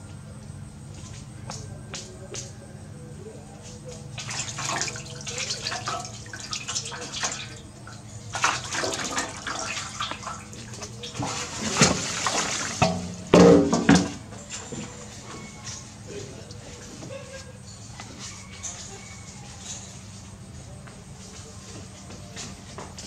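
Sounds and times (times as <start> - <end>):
water spilling from basin: 4.1 - 14.2
water splashing in metal basin: 4.1 - 14.3.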